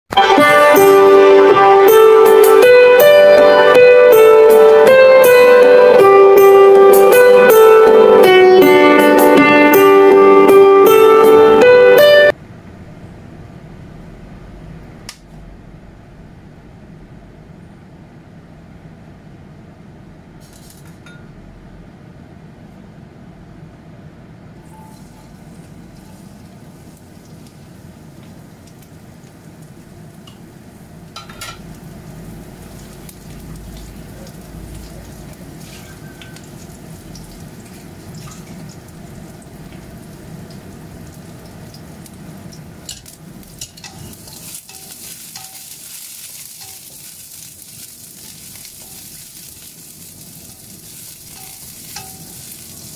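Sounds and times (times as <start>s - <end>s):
gas burner roar: 0.1s - 52.9s
onion sizzling in oil: 24.6s - 52.9s
hot oil hissing: 24.7s - 52.9s.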